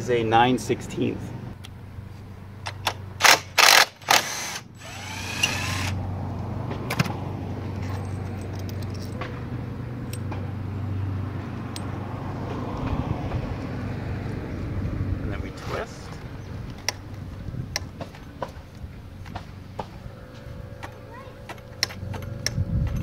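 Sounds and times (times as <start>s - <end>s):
cordless driver spinning bolt: 2.7s - 6.0s
steady low hum: 14.4s - 23.0s.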